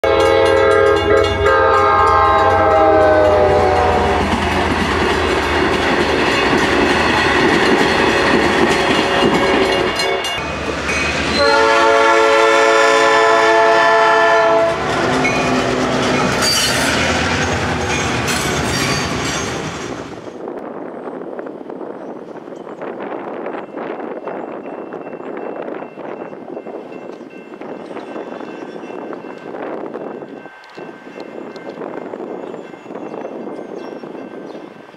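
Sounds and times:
diesel locomotive horn: 0:00.0 - 0:05.6, 0:09.3 - 0:18.0
train rumbling past: 0:00.0 - 0:34.9
train wheels clattering on rails: 0:00.1 - 0:11.6, 0:14.7 - 0:20.2, 0:22.1 - 0:34.9.

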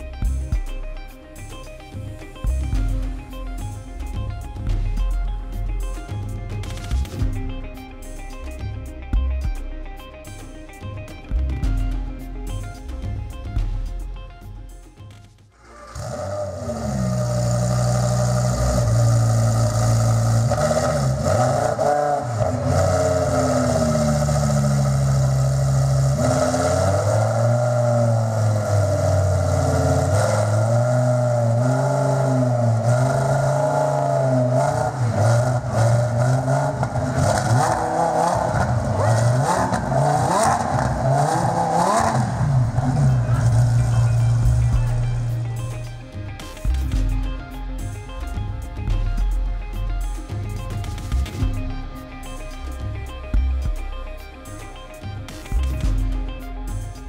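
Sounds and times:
car engine idling and revving: 0:00.0 - 0:57.0.

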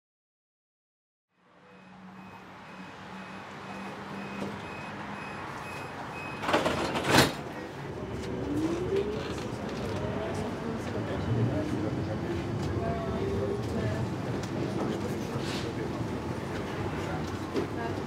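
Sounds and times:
door closing warning beeps: 0:01.7 - 0:07.0
tram interior rumble: 0:02.2 - 0:18.0.

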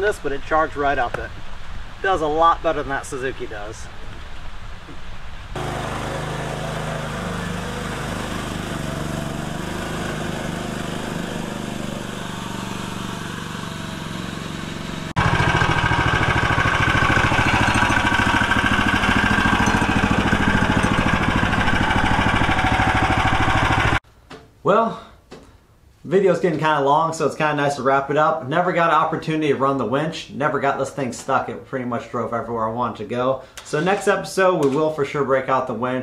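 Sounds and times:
small dump truck engine running: 0:05.6 - 0:24.0.

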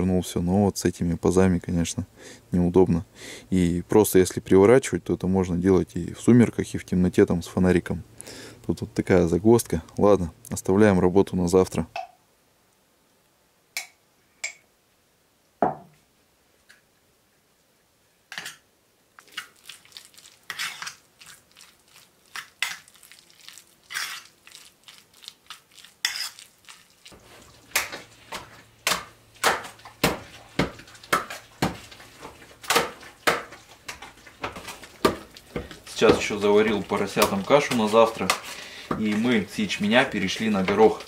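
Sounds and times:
porridge stirred in metal pot: 0:19.3 - 0:41.0
fork scraping in enamel bowl: 0:20.5 - 0:21.0, 0:23.9 - 0:24.3, 0:26.0 - 0:26.5.

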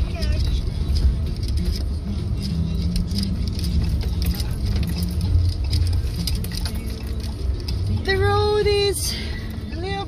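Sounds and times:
rattles inside car: 0:00.0 - 0:10.0
tyre and engine rumble: 0:00.0 - 0:10.0.

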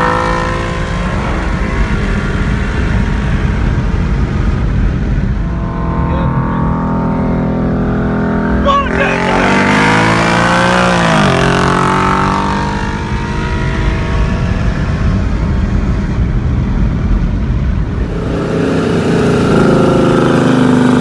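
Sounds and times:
car engines accelerating hard: 0:00.0 - 0:21.0
wind noise: 0:00.0 - 0:21.0.

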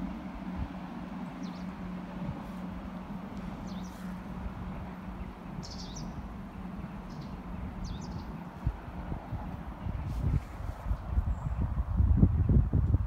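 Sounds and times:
low hum and rumble: 0:00.0 - 0:13.0
small birds chirping: 0:01.2 - 0:02.4, 0:03.0 - 0:09.0.

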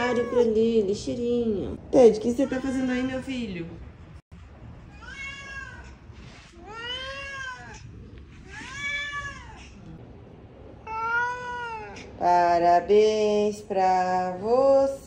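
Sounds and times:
cat meowing: 0:00.0 - 0:00.7, 0:04.9 - 0:06.0, 0:06.6 - 0:09.9, 0:10.8 - 0:12.2.

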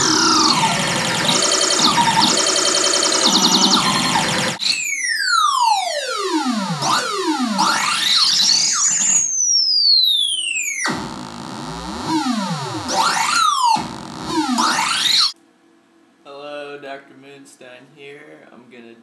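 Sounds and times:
synth sweeping buzzy tones: 0:00.0 - 0:04.6, 0:10.3 - 0:15.3.

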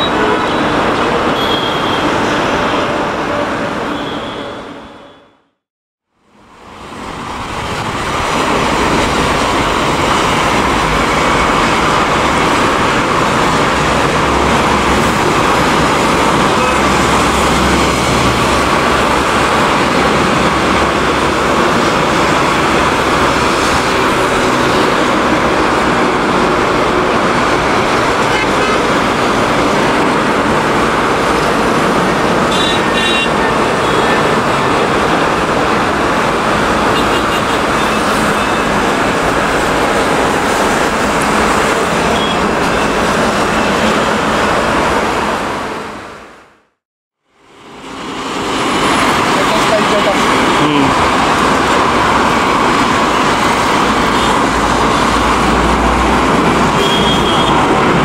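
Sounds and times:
jet engines roaring: 0:06.6 - 0:45.7.

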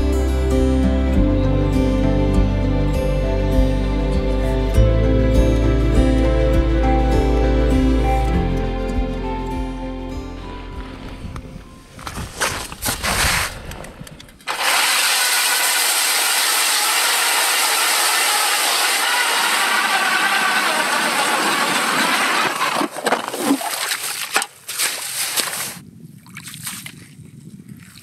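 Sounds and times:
auger grinding ice: 0:12.0 - 0:13.8, 0:14.4 - 0:25.8
ice chips scraping and knocking: 0:12.0 - 0:13.9, 0:20.3 - 0:25.8
ice auger motor whine: 0:14.5 - 0:23.5.

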